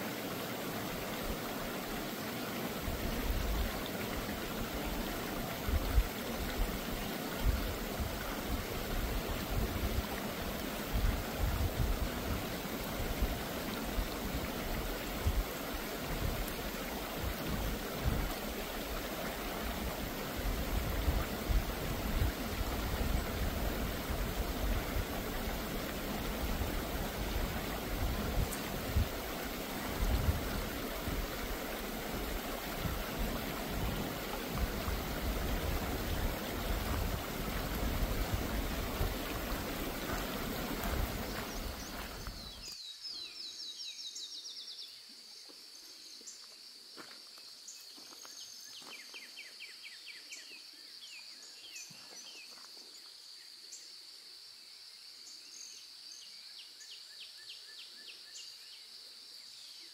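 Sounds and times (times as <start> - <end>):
water rushing in a stream: 0.0 - 43.8.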